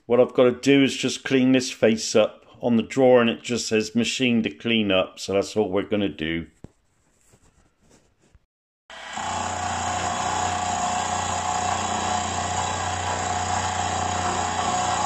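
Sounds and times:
milling machine whine: 8.9s - 15.0s.

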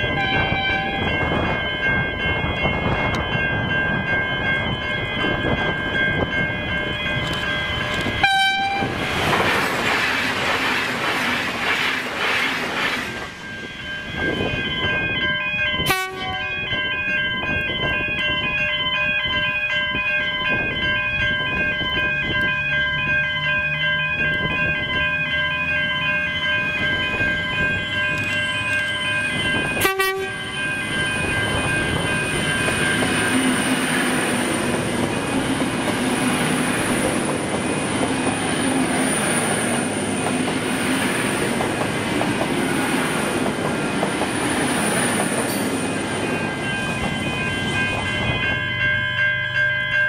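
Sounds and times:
train engines and wheels rushing: 0.0s - 50.0s
train high whine: 0.0s - 50.0s
train horn blast: 0.1s - 1.1s, 8.2s - 9.0s, 15.8s - 16.5s, 29.8s - 30.5s.

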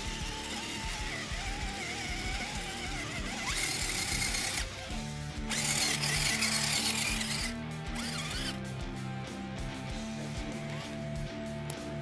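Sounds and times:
toy car motor whining: 0.0s - 8.6s
guitar music: 0.0s - 12.0s.

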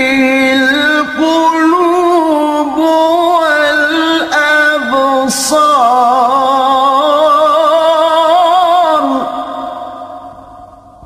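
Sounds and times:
man reciting melodically: 0.0s - 10.2s.

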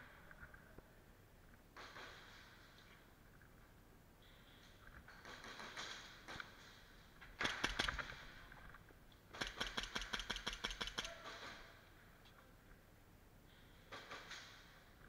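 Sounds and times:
airsoft pistol shots: 7.4s - 8.1s, 9.4s - 11.6s.

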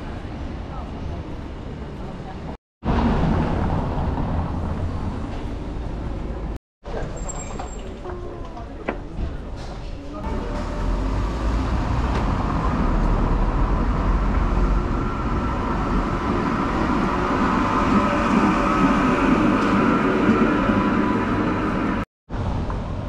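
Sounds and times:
tram rumbling on rails: 0.0s - 23.0s
high whine: 10.2s - 22.1s.

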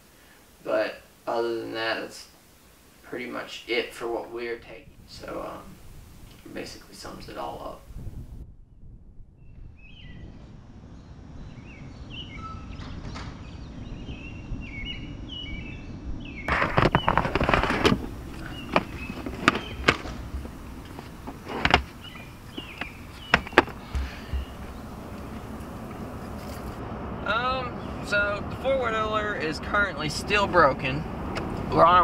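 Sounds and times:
birds chirping: 11.0s - 32.0s
plastic case knocking and clunking: 16.5s - 25.5s.

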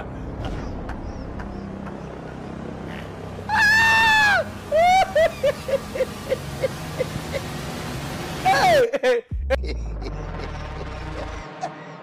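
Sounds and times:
woman screaming: 3.5s - 5.5s, 8.4s - 8.9s.

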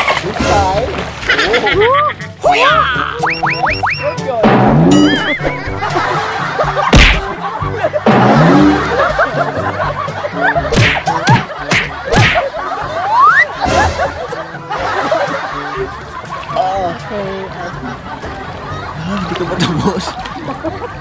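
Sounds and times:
background music: 0.0s - 21.0s
laughter: 1.2s - 2.3s, 5.1s - 21.0s
bouncing boing sound: 4.4s - 5.8s
sharp comedy hits: 4.4s - 6.0s, 6.9s - 7.4s, 8.1s - 9.0s, 10.7s - 12.4s, 13.6s - 14.4s.

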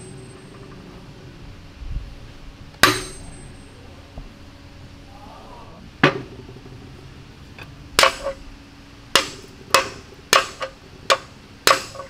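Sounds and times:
hammer striking steel: 2.8s - 3.8s, 8.0s - 8.4s, 9.1s - 12.0s.

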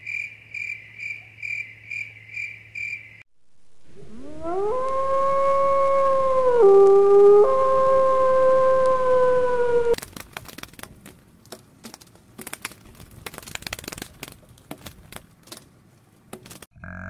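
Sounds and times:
wolf howling: 4.0s - 10.0s.

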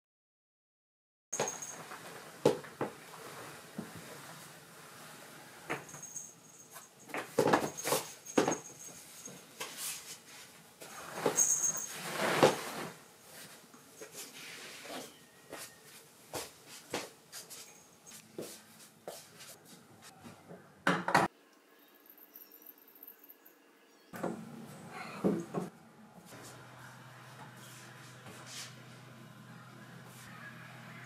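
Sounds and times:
bedsheets rustling: 1.4s - 19.8s.

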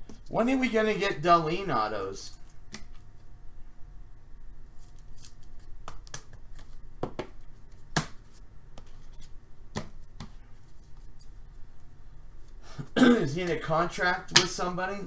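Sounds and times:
cards clicking and tapping: 5.2s - 8.2s.

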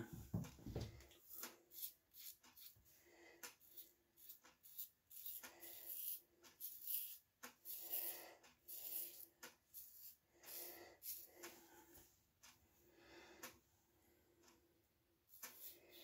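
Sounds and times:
razor scraping stubble: 1.3s - 2.8s, 3.6s - 11.4s, 15.3s - 16.0s.

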